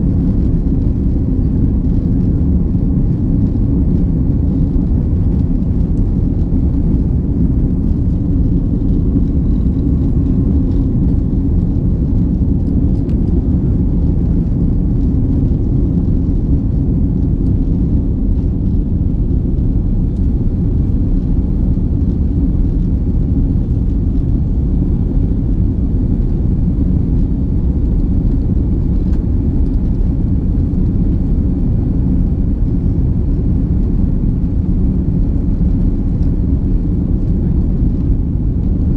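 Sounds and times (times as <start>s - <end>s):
jet engine and airflow rumble: 0.0s - 38.9s.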